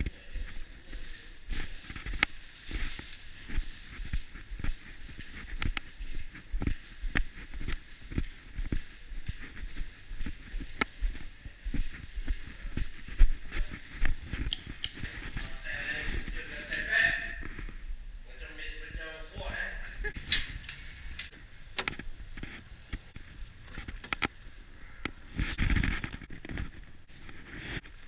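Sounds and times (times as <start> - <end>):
footsteps: 0.0 - 18.0.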